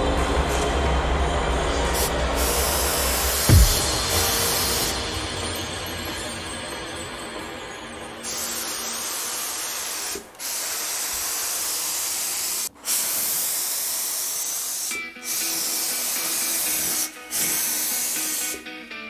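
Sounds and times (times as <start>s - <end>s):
spray gun hissing: 2.0s - 5.2s, 8.2s - 18.6s.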